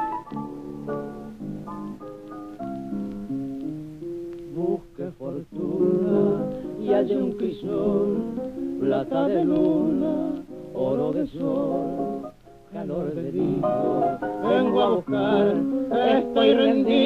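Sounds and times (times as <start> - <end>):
piano and guitar: 0.0 - 17.0
men singing with vibrato: 4.5 - 17.0.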